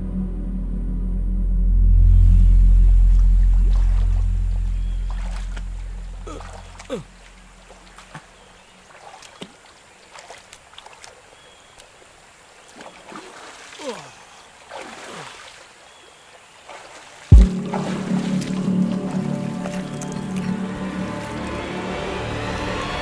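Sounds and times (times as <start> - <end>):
music: 0.0 - 6.6, 17.3 - 23.0
loud low boom: 0.0 - 6.9, 17.3 - 20.5
water splashing and trickling: 3.1 - 23.0.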